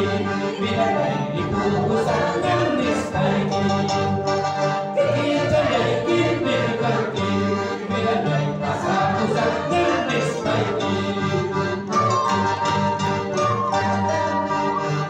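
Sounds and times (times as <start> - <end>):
accordion chords: 0.0 - 15.0
harp plucked bass notes: 0.7 - 15.0
wooden flute: 10.5 - 15.0.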